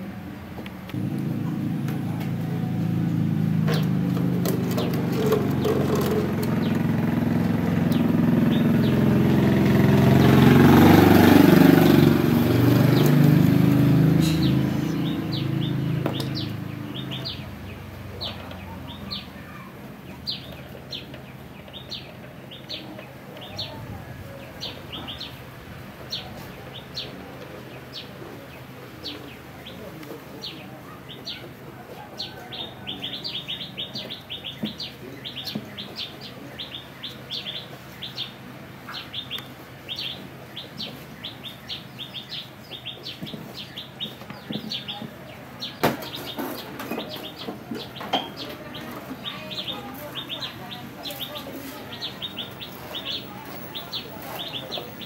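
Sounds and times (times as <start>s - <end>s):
small birds chirping: 0.8s - 55.0s
passing vehicle engine: 0.9s - 19.3s.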